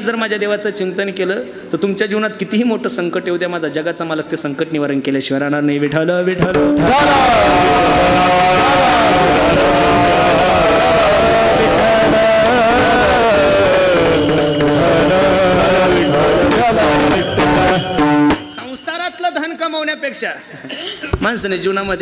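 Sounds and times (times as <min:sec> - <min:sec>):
person singing devotional melody: 0:06.5 - 0:18.7
steady percussion beat: 0:06.5 - 0:19.1.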